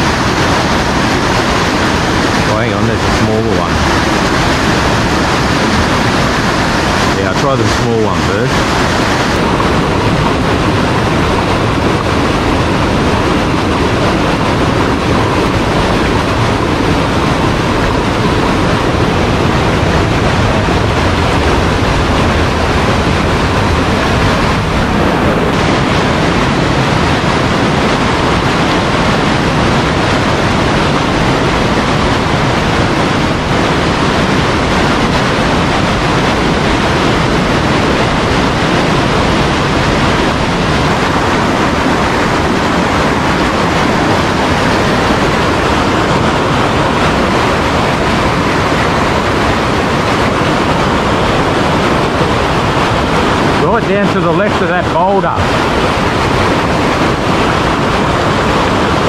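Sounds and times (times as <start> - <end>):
rushing white-water rapids: 0.0 - 59.0.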